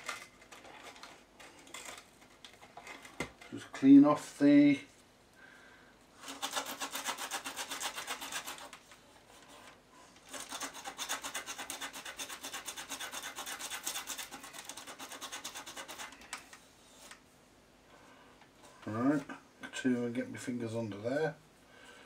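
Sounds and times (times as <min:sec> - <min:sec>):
sandpaper rubbing: 0:06.2 - 0:08.8, 0:10.3 - 0:16.3.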